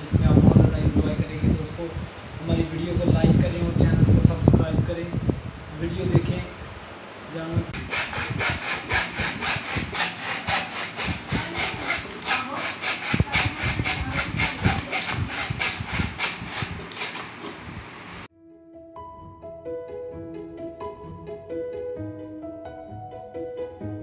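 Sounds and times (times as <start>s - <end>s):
hand saw cutting wood: 7.8s - 17.6s.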